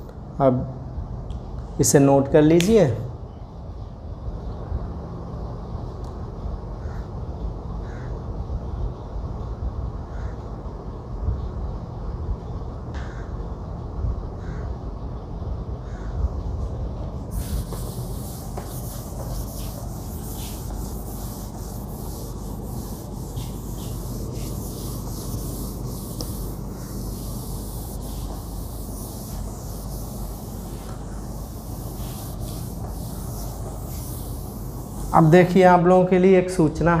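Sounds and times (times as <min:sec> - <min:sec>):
eraser rubbing whiteboard: 0:17.3 - 0:35.7.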